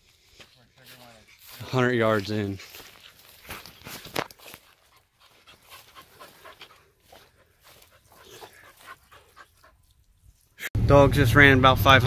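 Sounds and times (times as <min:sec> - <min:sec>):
dog panting: 0:04.4 - 0:10.2.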